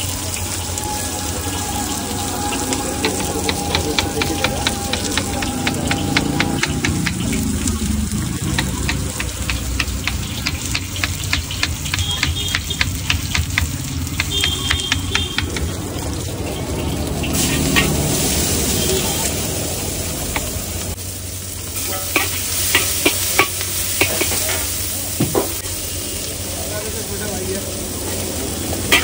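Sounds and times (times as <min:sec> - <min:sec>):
vegetables sizzling in a wok: 0:00.0 - 0:29.0
metal spatula stirring wok: 0:02.0 - 0:15.8, 0:17.3 - 0:18.6, 0:21.7 - 0:24.9, 0:28.8 - 0:29.0.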